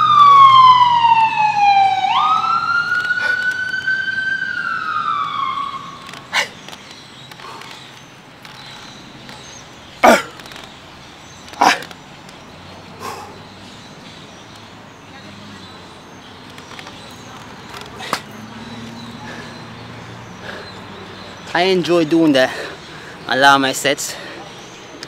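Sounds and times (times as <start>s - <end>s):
emergency vehicle siren wailing: 0.0s - 6.5s.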